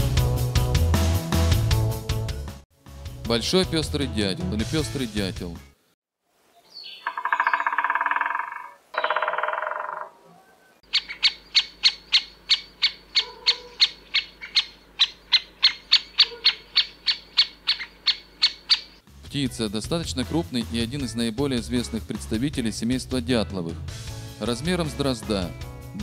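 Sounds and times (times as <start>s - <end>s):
woodpecker calling: 6.6s - 19.0s.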